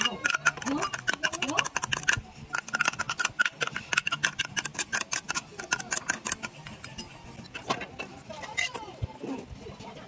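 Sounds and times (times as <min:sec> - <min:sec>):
metal spoon scraping glass bowl: 0:00.0 - 0:07.7, 0:08.3 - 0:08.9.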